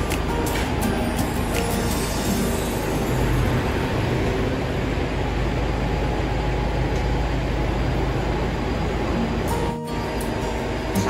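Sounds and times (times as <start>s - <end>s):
freezer fans rushing air: 0.0s - 11.0s
low hum: 0.0s - 11.0s.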